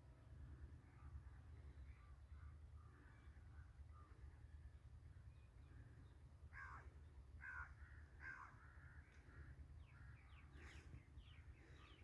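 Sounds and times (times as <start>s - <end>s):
low steady rumble: 0.0s - 12.0s
bird caw-like calls: 6.5s - 11.0s.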